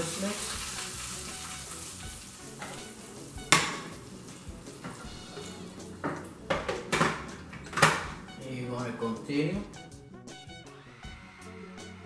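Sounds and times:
garlic and oil sizzling: 0.0s - 7.0s.

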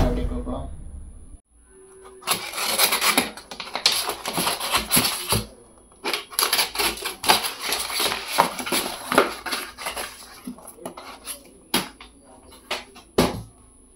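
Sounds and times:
cardboard box crackling: 2.1s - 13.2s
box cutter slicing cardboard: 2.2s - 12.0s.

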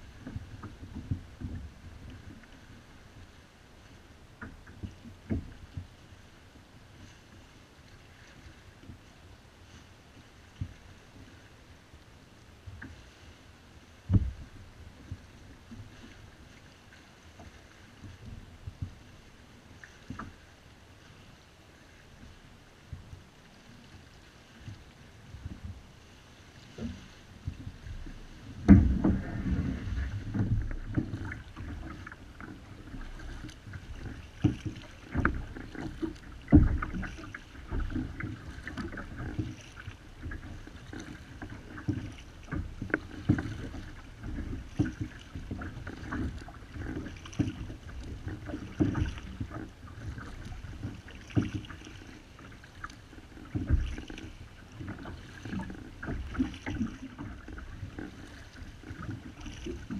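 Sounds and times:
paddle knocking against hull: 0.0s - 2.8s, 4.4s - 6.0s, 14.0s - 16.6s, 17.4s - 19.1s, 26.7s - 59.9s
water lapping along hull: 0.0s - 59.9s
kayak paddle splashing: 12.7s - 59.9s.

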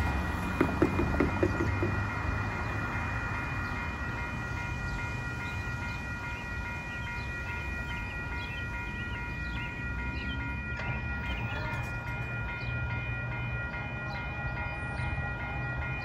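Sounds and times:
railway crossing bell ringing: 0.0s - 16.0s.

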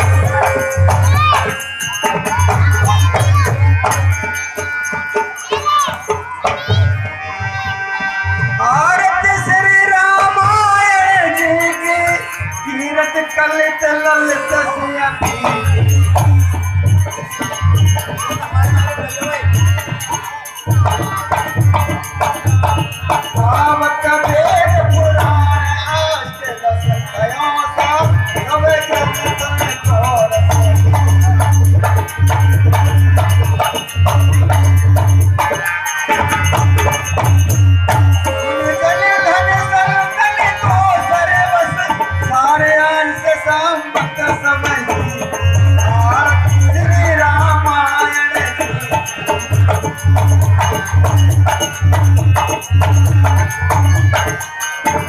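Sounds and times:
man singing into a microphone: 0.0s - 5.0s, 7.1s - 55.0s
shaken rattling percussion: 0.0s - 7.0s, 15.2s - 42.8s, 43.9s - 55.0s
harmonium: 0.0s - 55.0s.

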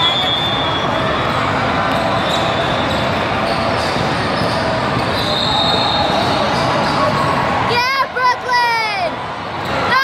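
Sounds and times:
spectators' voices: 0.0s - 10.0s.

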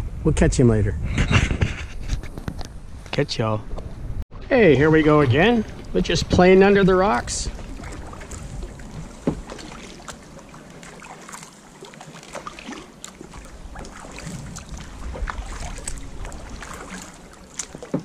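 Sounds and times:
wind rumble on microphone: 0.0s - 10.0s, 13.3s - 17.4s
kayak paddle dipping in water: 4.8s - 18.0s
water drips and splashes: 4.9s - 18.0s.

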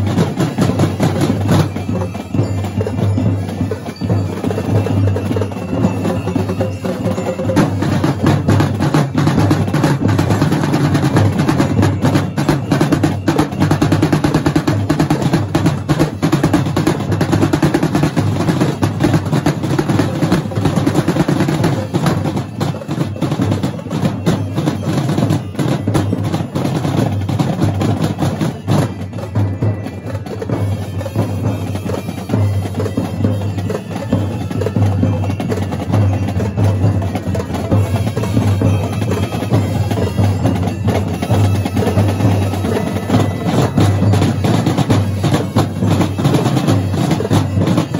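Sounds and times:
marching snare drums: 0.0s - 47.9s.

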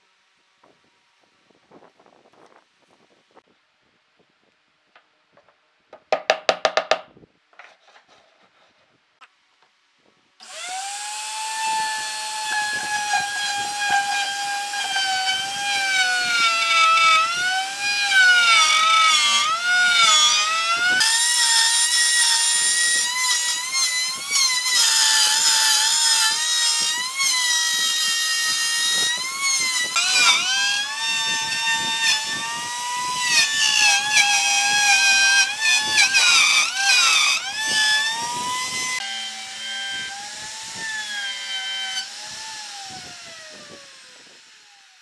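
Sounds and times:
router whining while cutting wood: 10.4s - 45.0s.

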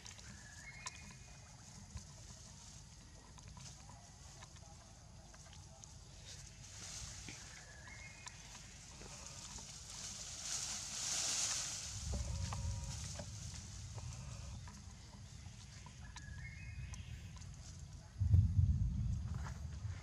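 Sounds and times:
leaves and branches rustling: 5.2s - 18.3s
low rumble: 11.7s - 20.0s.

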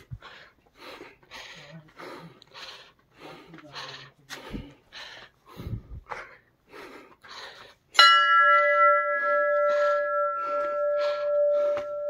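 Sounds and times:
hard quick breathing: 0.0s - 8.0s, 8.7s - 12.0s
large bell ringing: 7.9s - 12.0s.

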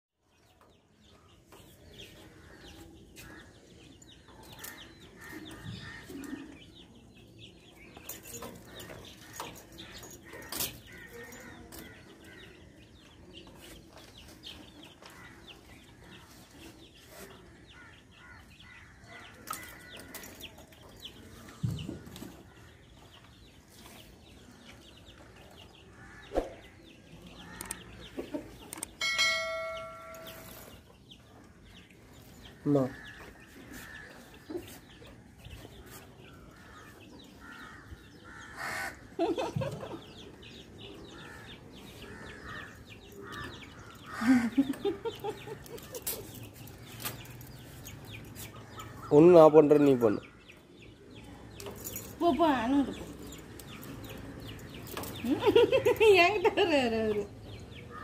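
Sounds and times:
chickens clucking: 1.4s - 51.8s
metal chain clinking: 7.9s - 12.0s, 19.4s - 21.4s, 29.0s - 30.9s, 51.5s - 55.4s.

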